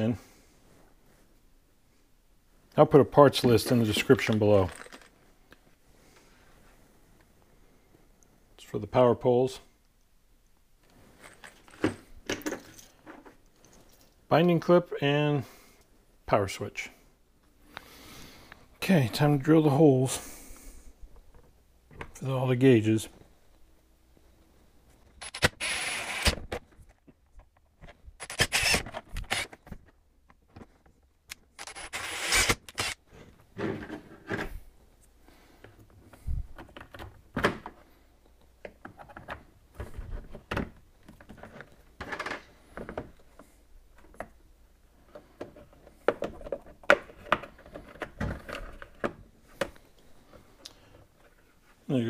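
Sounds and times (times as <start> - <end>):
plastic and metal parts rattling: 3.6 - 5.2
cordless drill drilling plastic: 25.2 - 26.4, 28.2 - 29.5, 31.6 - 33.0.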